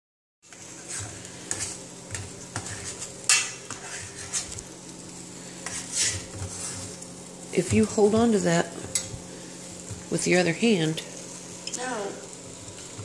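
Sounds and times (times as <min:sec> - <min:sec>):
metal spoon stirring in saucepan: 0:00.5 - 0:04.6, 0:05.6 - 0:07.0.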